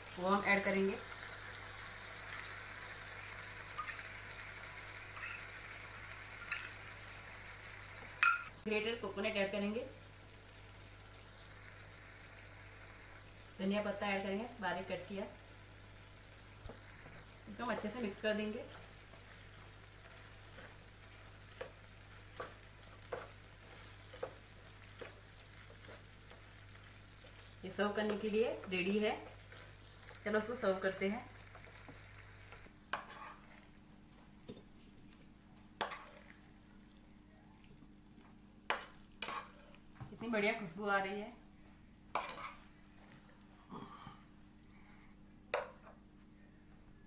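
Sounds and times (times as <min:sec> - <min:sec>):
food sizzling in a pan: 0:00.0 - 0:37.3, 0:38.0 - 0:41.1, 0:42.0 - 0:42.8
spoon tapping pan: 0:08.2 - 0:08.5
spatula scraping a pan: 0:32.9 - 0:33.6, 0:38.7 - 0:39.6, 0:42.2 - 0:42.6.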